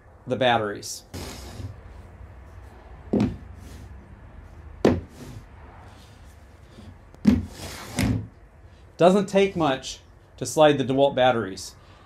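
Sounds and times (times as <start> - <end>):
batteries knocking on a workbench: 3.1 - 3.4.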